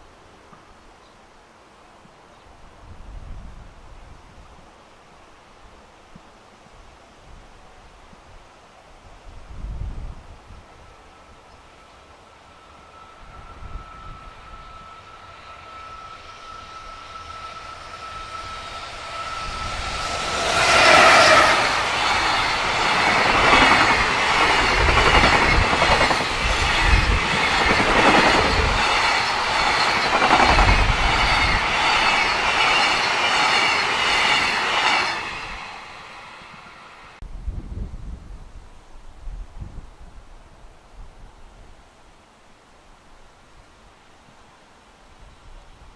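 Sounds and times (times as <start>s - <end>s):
electric locomotive high tone: 10.5s - 37.2s
train wheels clattering on rails: 12.6s - 36.8s.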